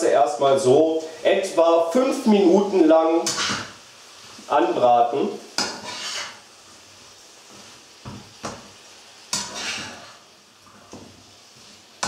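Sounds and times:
spatula scraping frying pan: 0:03.2 - 0:04.5, 0:05.4 - 0:12.0.

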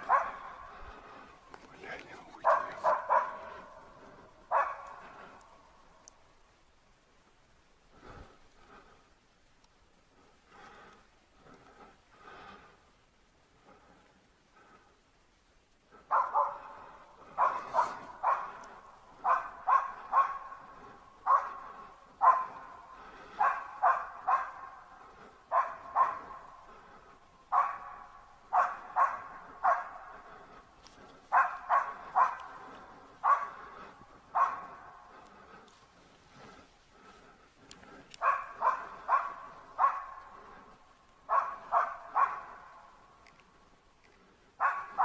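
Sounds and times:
dog barking with echo: 0:00.0 - 0:01.1, 0:02.4 - 0:05.5, 0:16.0 - 0:30.6, 0:31.3 - 0:35.5, 0:38.2 - 0:43.0, 0:44.6 - 0:45.0.

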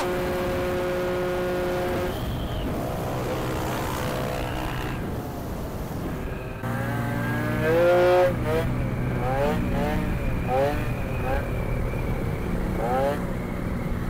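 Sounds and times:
louder engine revving: 0:00.0 - 0:05.0, 0:06.6 - 0:11.4
small motorcycle engines running: 0:00.0 - 0:05.1, 0:06.6 - 0:14.0.

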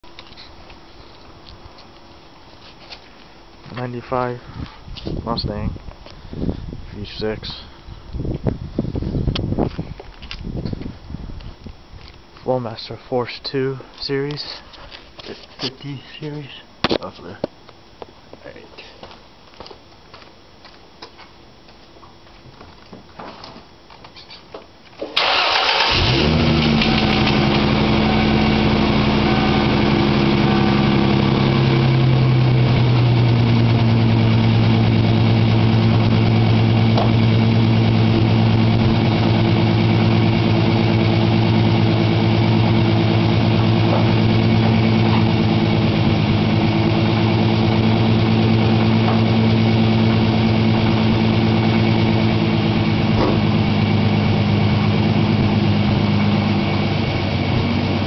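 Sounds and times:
car engine starting and idling: 0:25.2 - 0:58.0.

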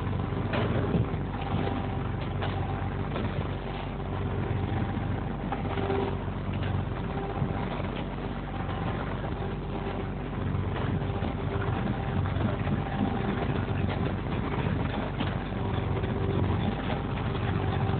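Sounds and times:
boat engine running: 0:00.0 - 0:17.9
water rushing against hull: 0:00.0 - 0:17.9.

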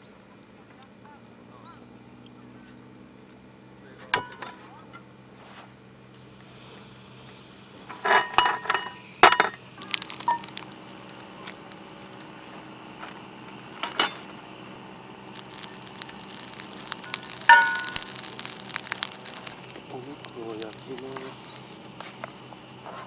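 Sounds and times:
fat sizzling in a pan: 0:04.1 - 0:23.0
skillet clanking on burner: 0:04.2 - 0:04.6, 0:07.9 - 0:09.6.

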